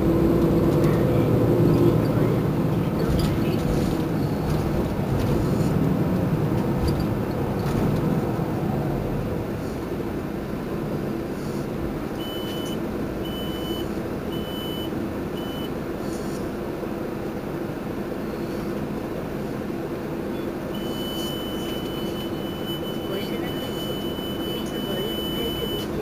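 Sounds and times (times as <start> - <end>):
bus diesel engine idling: 0.0 - 26.0
short high electronic beeps: 12.2 - 13.8, 20.4 - 26.0
continuous high beep: 12.2 - 15.8, 20.3 - 26.0.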